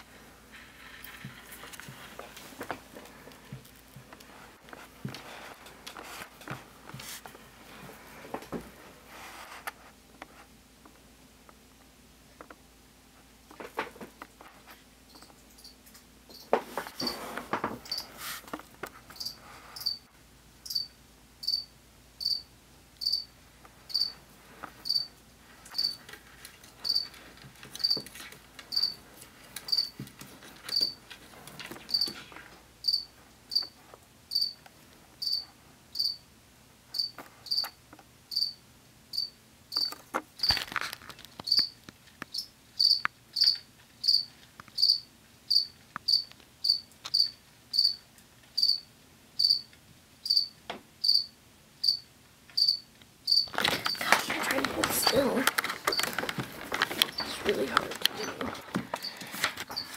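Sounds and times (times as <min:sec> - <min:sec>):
rustling and handling noises: 0:00.0 - 0:20.1, 0:23.5 - 0:35.8, 0:39.8 - 0:42.3, 0:53.5 - 0:59.9
cricket chirping: 0:19.2 - 0:20.0, 0:20.6 - 0:23.3, 0:23.9 - 0:24.1, 0:24.8 - 0:25.1, 0:25.8 - 0:26.0, 0:26.8 - 0:27.1, 0:28.7 - 0:29.0, 0:29.7 - 0:29.9, 0:30.7 - 0:31.0, 0:32.8 - 0:33.7, 0:34.3 - 0:34.6, 0:35.2 - 0:35.4, 0:36.0 - 0:36.2, 0:37.0 - 0:40.0, 0:41.5 - 0:41.7, 0:42.3 - 0:48.0, 0:48.6 - 0:53.5.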